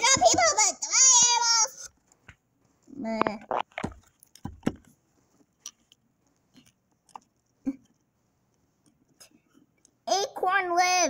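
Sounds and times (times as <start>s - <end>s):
handling knocks: 3.6s - 4.9s.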